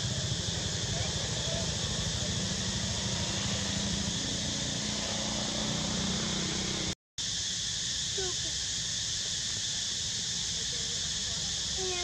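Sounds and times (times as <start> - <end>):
constant hiss: 0.0 - 12.0.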